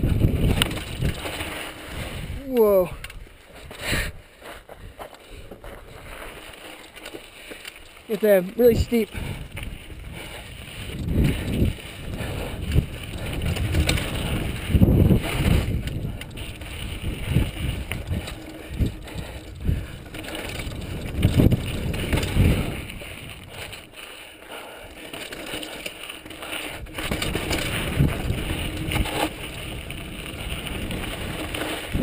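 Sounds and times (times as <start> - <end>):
wind on microphone: 0.0 - 5.0, 8.6 - 23.9, 26.7 - 32.0
bike rattling: 0.0 - 32.0
bike tyres rumbling on dirt: 0.0 - 32.0
bike knocking over rocks: 0.1 - 3.3, 10.7 - 24.0, 25.0 - 32.0.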